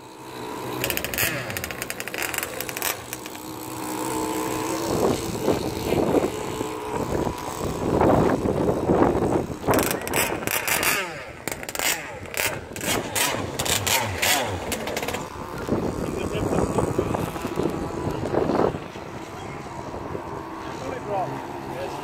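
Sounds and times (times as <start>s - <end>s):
model powerboat engines whining: 0.0s - 22.0s.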